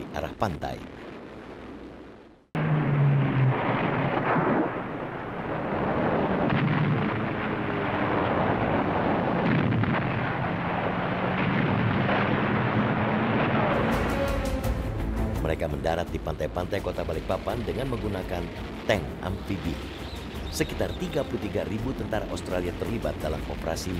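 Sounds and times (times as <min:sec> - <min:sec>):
artillery fire and explosions: 0:00.0 - 0:14.6
sharp cracks: 0:03.2 - 0:14.4.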